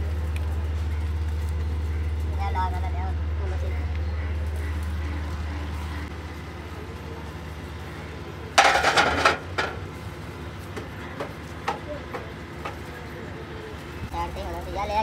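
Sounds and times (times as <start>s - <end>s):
metal tools clattering: 8.6s - 9.8s.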